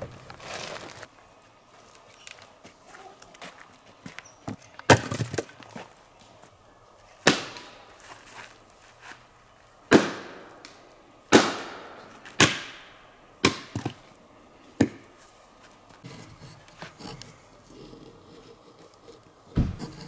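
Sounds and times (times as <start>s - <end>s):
axe chopping firewood: 4.8s - 5.6s, 7.2s - 7.8s, 9.9s - 14.0s, 14.8s - 15.1s.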